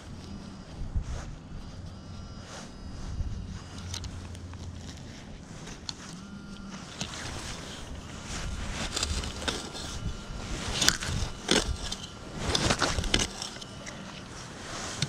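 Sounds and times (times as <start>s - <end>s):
shovel scraping through soil: 3.5s - 15.0s.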